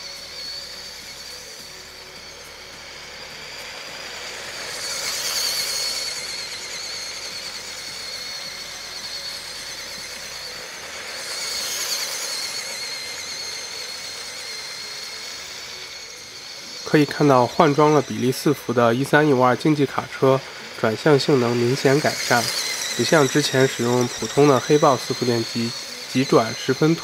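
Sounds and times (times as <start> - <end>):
toy truck motor whine: 0.0 - 27.0.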